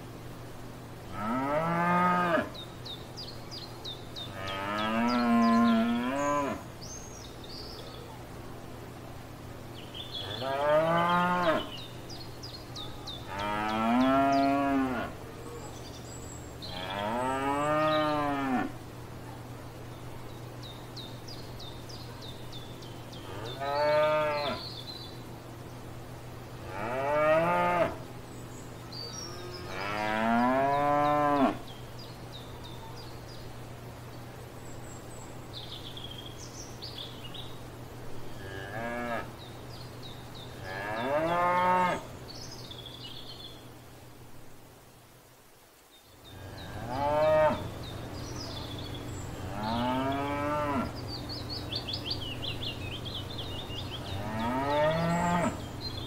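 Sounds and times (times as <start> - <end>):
cows mooing: 1.2 - 2.5, 13.3 - 15.1, 26.7 - 28.0, 29.4 - 31.6, 40.7 - 42.0, 46.4 - 47.6, 49.5 - 50.9, 54.0 - 55.6.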